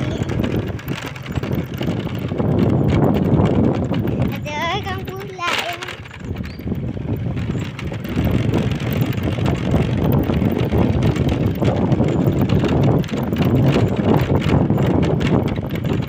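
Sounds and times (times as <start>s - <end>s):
vehicle running noise: 0.0s - 16.0s
wind buffeting microphone: 0.0s - 16.0s.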